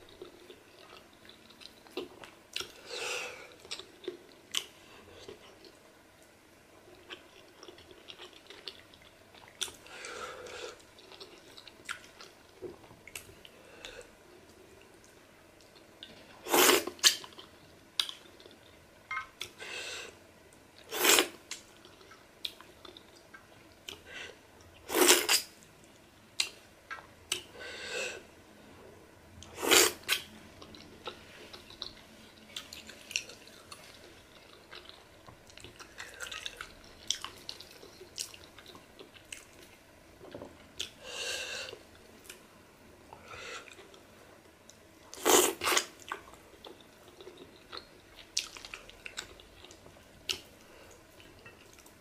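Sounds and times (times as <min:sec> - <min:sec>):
person chewing with wet mouth sounds: 0:00.0 - 0:19.6, 0:20.8 - 0:27.5, 0:29.4 - 0:41.0, 0:43.1 - 0:52.0
slurping or sucking sounds: 0:29.6 - 0:30.2.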